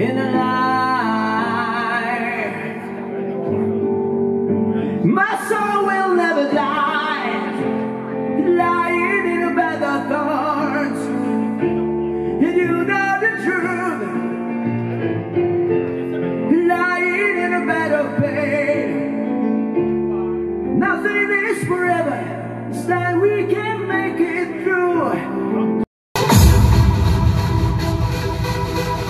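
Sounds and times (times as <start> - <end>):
man singing with vibrato: 0.0 - 3.3.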